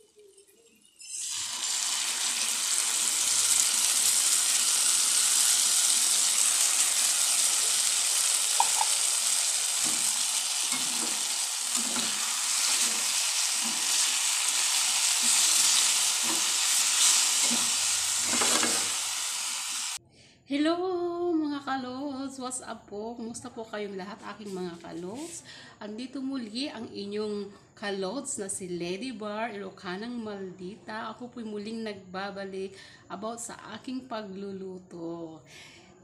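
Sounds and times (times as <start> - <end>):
food sizzling in a wok: 0.0 - 20.0
spatula scraping metal wok: 6.2 - 19.2.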